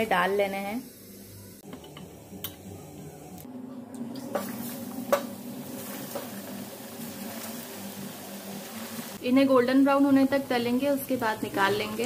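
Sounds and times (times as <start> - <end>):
deep-frying sizzle with pops: 4.4 - 9.2.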